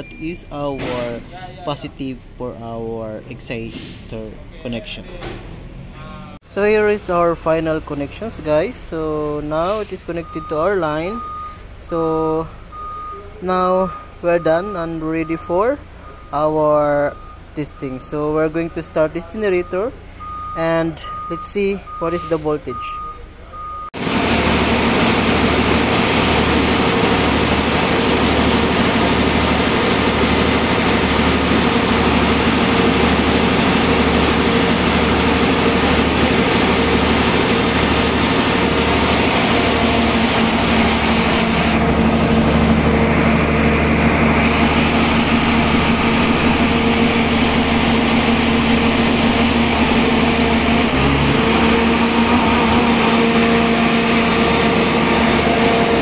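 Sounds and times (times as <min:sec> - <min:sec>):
diesel generator running: 0:00.0 - 0:22.8, 0:23.6 - 0:56.0
low pulsing throb: 0:24.0 - 0:56.0.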